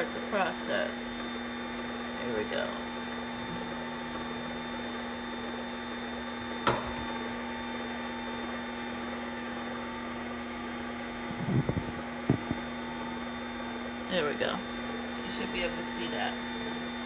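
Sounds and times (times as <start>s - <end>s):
juicer motor humming: 0.0s - 17.0s
soft knocks: 11.4s - 12.6s.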